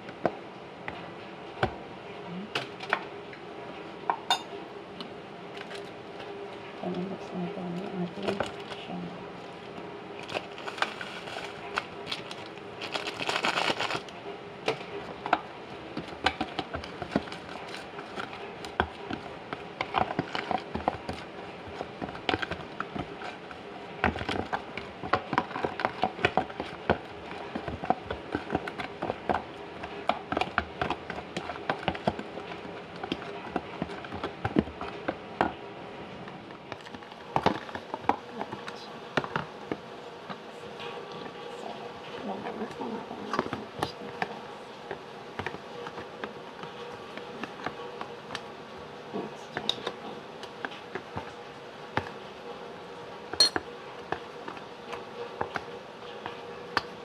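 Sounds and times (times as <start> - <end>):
spice packet rustling: 10.2 - 14.1.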